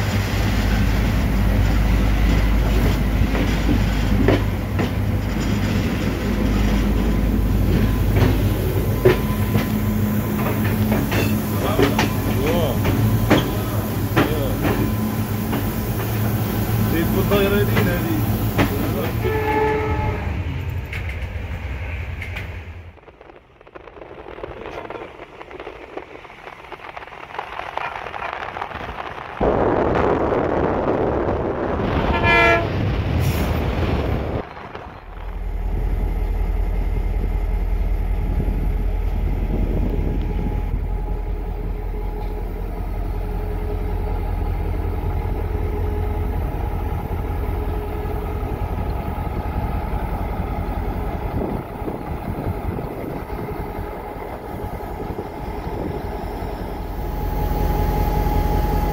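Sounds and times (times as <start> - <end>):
diesel locomotive idling: 0.0 - 23.1, 35.0 - 58.9
diesel locomotive passing: 0.0 - 58.9
locomotive horn blast: 19.0 - 20.5, 32.0 - 32.9.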